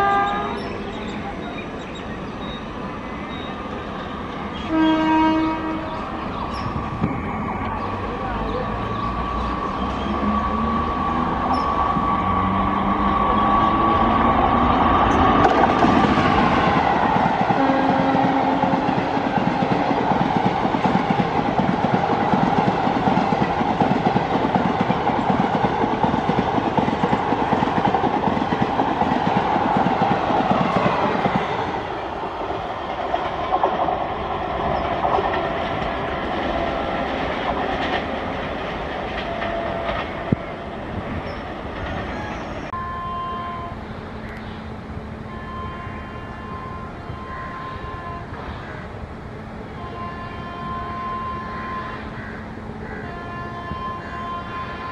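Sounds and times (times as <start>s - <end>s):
train horn: 0.0s - 0.7s, 4.6s - 6.0s, 17.5s - 19.2s, 42.7s - 43.8s, 45.2s - 48.4s, 49.7s - 52.2s, 52.9s - 54.9s.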